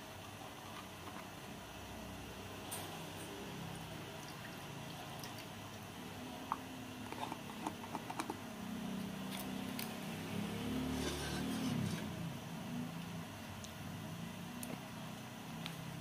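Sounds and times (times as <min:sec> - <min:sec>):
metal spoon scraping pot: 0:10.9 - 0:12.1.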